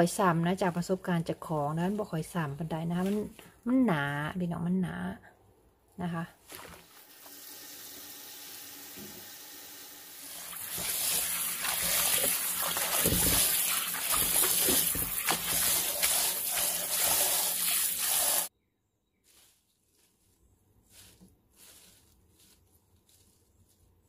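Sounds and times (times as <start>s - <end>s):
hand splashing leaves in water: 6.4s - 7.0s
tap water running into bowl: 7.1s - 18.5s.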